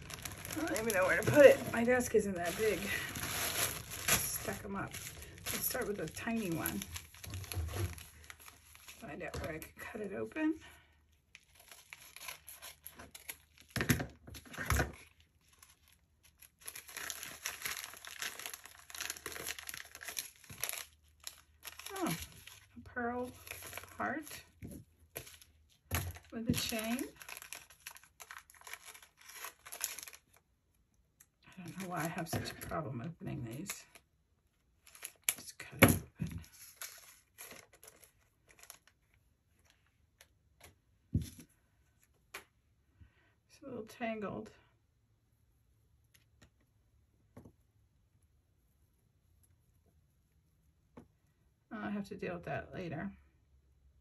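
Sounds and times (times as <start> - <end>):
plastic packaging crinkling: 0.0 - 9.9, 11.3 - 30.4, 34.8 - 40.3.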